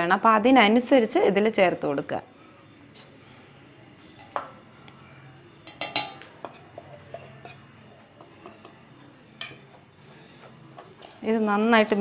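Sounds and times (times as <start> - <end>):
spoon clinking on plate and pot: 4.2 - 4.6, 5.6 - 8.8, 9.4 - 9.8.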